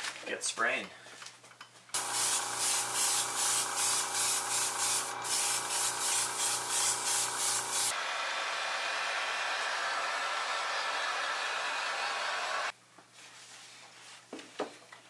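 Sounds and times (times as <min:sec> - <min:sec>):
airbrush spraying hiss: 0:02.0 - 0:08.0.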